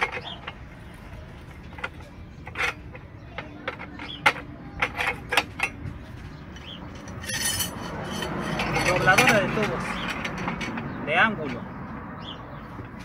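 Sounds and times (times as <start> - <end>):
metal rods clinking on bender: 1.5 - 5.9, 6.5 - 11.6.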